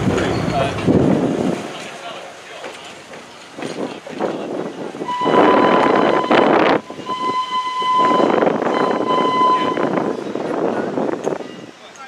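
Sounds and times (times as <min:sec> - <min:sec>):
moving train rushing noise: 0:00.0 - 0:12.0
steam locomotive whistle: 0:05.0 - 0:10.1.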